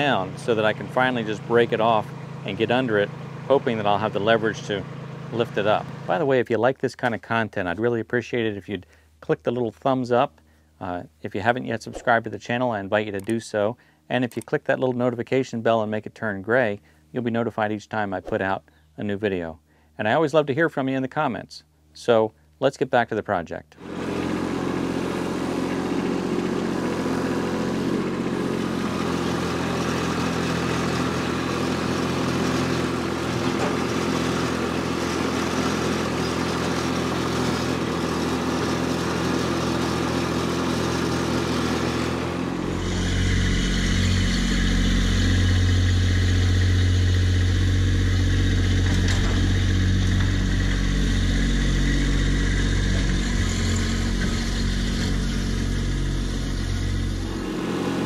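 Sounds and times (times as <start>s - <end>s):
tractor diesel engine running: 0.0s - 6.3s, 23.8s - 58.0s.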